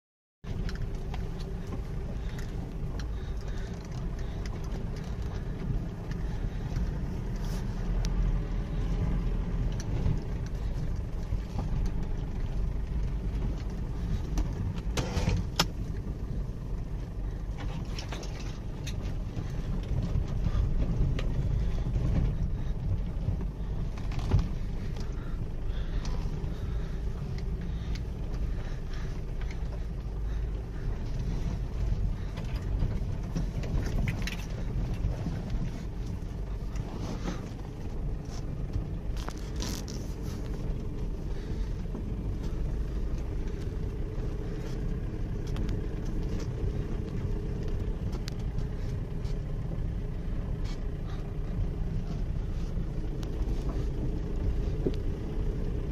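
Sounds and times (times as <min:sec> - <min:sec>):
engine and road rumble: 0:00.4 - 0:55.9.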